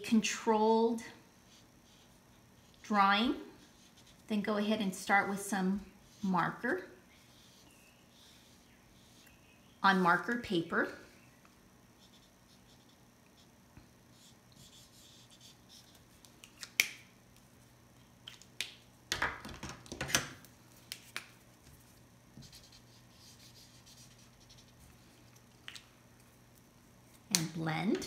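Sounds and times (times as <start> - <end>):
marker scratching on paper: 1.5 - 4.3, 6.0 - 10.3, 12.0 - 13.5, 14.1 - 16.3, 22.4 - 24.8.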